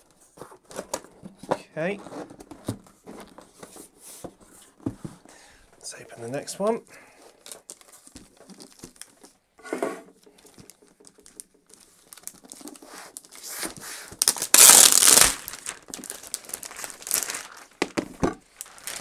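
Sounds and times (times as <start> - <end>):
plastic wrapping crinkling: 7.2 - 9.4, 10.3 - 19.0
plastic tearing rip: 14.2 - 18.0.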